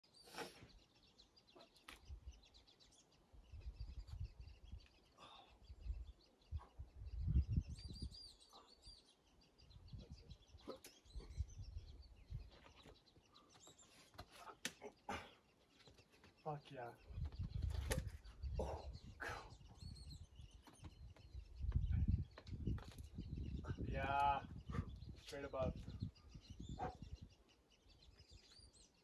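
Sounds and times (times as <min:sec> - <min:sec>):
small birds chirping: 0:00.0 - 0:29.0
wind rumbling on microphone: 0:03.4 - 0:04.9, 0:05.7 - 0:08.4, 0:09.6 - 0:12.6, 0:17.0 - 0:28.4.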